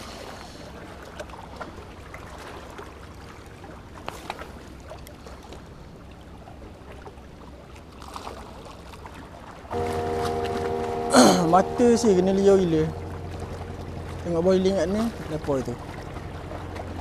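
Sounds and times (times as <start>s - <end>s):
low outdoor rumble: 9.7s - 17.0s.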